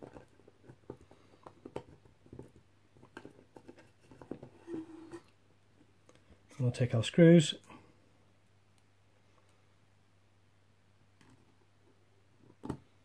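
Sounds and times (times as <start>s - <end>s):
faint clicks and taps on plastic: 0.0s - 4.5s.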